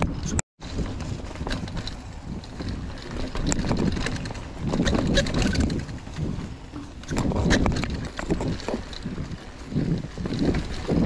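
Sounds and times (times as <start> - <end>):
bike rattles and clicks: 0.0 - 11.0
wind buffeting microphone: 0.0 - 11.0
bike tyres crunching on dirt: 0.1 - 11.0.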